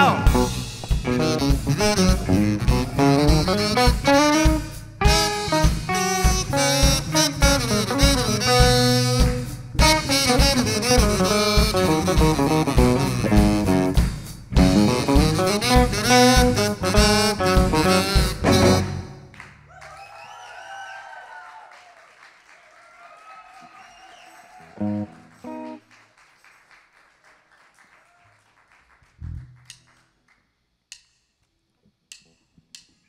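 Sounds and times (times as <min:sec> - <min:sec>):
funk rock band playing: 0:00.0 - 0:19.2, 0:24.8 - 0:25.8
single bass and guitar notes: 0:14.6 - 0:19.2
audience whooping and whistling: 0:19.7 - 0:25.8.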